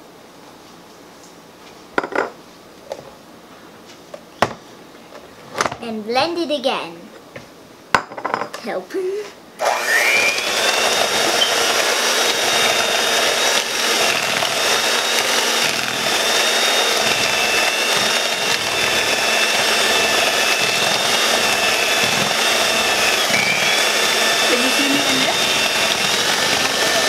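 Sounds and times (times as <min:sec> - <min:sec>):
electric hand mixer whining: 0:09.6 - 0:27.0.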